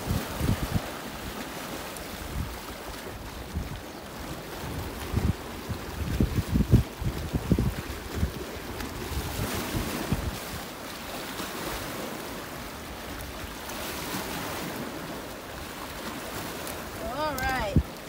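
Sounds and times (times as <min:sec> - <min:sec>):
waves washing against rocks: 0:00.0 - 0:18.0
wind rumbling on microphone: 0:00.0 - 0:18.0.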